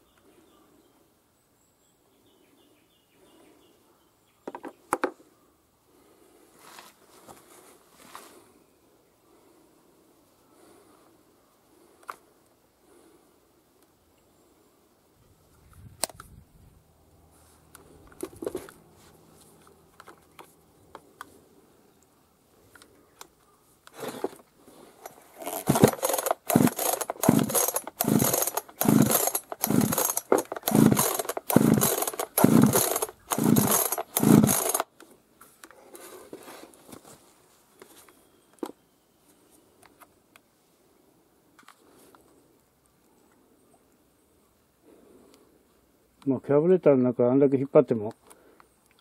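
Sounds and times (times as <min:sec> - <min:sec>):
chainsaw recoil starter pulls: 0:25.0 - 0:34.9.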